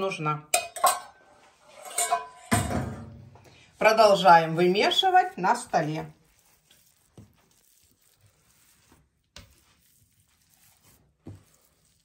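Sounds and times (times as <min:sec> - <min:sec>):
soft thumps of kneading dough: 0:05.7 - 0:12.0.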